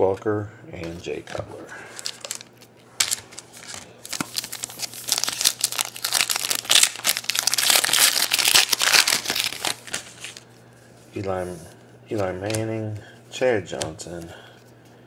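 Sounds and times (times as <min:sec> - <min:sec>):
foil wrapper tearing and crinkling: 0:01.9 - 0:10.4.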